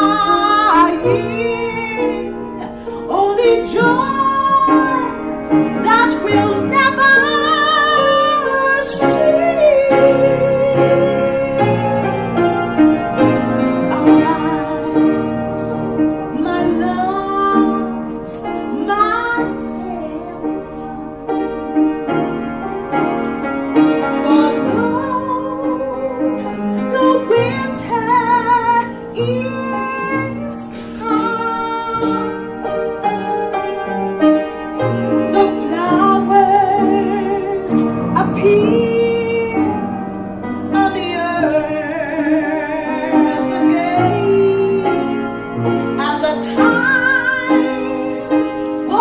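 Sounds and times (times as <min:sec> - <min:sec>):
woman singing with vibrato: 0:00.0 - 0:20.9, 0:22.6 - 0:33.6, 0:35.1 - 0:49.0
piano accompaniment: 0:00.0 - 0:49.0.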